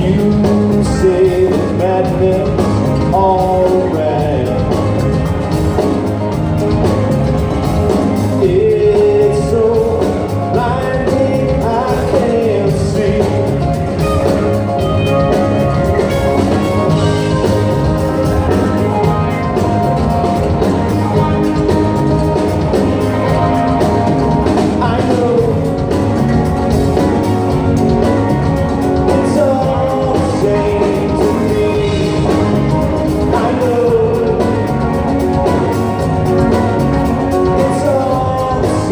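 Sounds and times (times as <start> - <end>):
lead vocal singing: 0.0 - 4.9, 8.4 - 14.4, 24.5 - 26.3, 28.9 - 35.0, 37.3 - 38.9
live rock band playing: 0.0 - 38.9.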